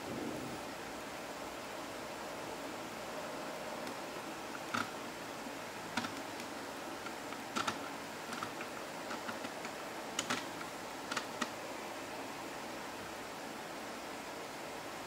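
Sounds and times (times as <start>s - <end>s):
steady hiss: 0.0s - 15.0s
plastic bricks clicking: 6.0s - 11.5s.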